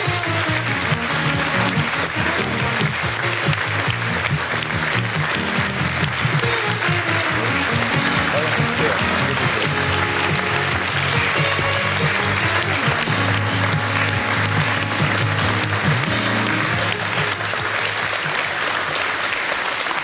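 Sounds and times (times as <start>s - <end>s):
music: 0.0s - 19.8s
audience applauding: 0.0s - 20.0s.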